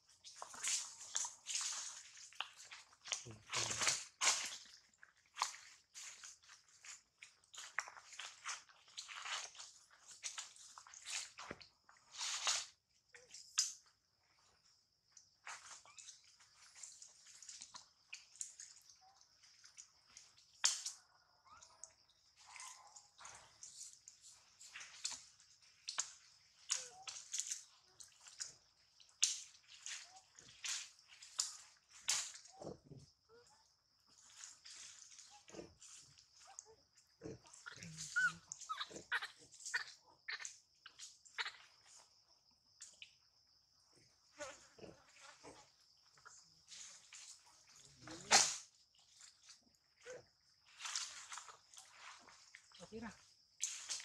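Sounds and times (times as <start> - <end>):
insects droning: 0.0 - 54.0
faint squeaks or chirps: 15.4 - 17.5, 21.0 - 25.2, 26.6 - 27.9, 29.7 - 30.8, 32.4 - 42.1.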